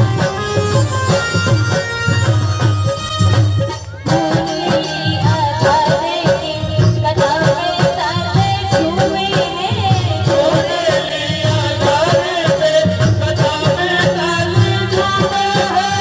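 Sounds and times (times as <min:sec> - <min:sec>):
instrumental accompaniment: 0:00.0 - 0:16.0
steady drum beat: 0:00.0 - 0:16.0
woman singing devotional song: 0:03.8 - 0:16.0.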